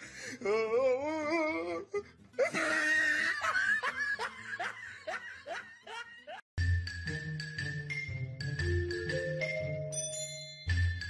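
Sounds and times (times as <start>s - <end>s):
person laughing: 2.4s - 6.4s.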